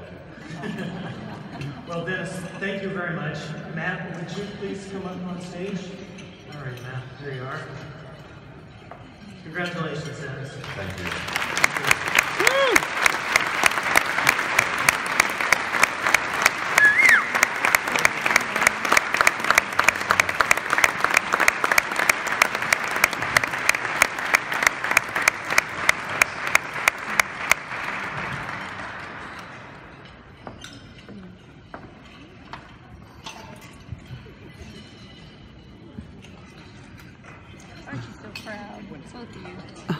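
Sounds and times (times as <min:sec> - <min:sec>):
audience applauding: 0:10.6 - 0:30.0
person clapping close by: 0:11.0 - 0:29.5.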